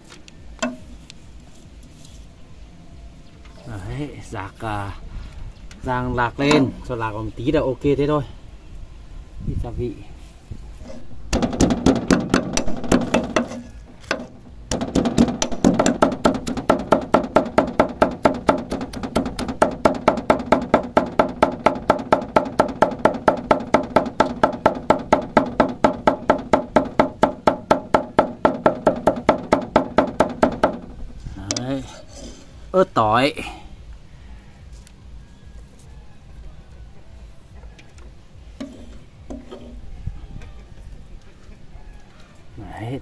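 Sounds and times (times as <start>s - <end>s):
knife chopping on wooden board: 11.4s - 30.9s.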